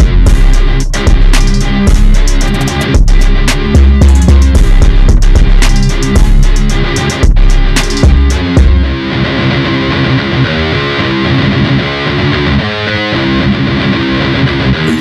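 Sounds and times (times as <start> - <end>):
heavy bass hit: 0.0 - 9.0
distorted electric guitar chords: 0.0 - 15.0.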